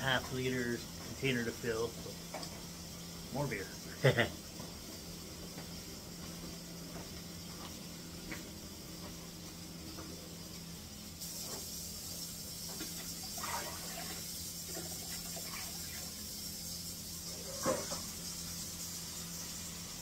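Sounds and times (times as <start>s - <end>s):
water running from a tap: 11.2s - 20.0s
water splashing: 13.3s - 16.2s.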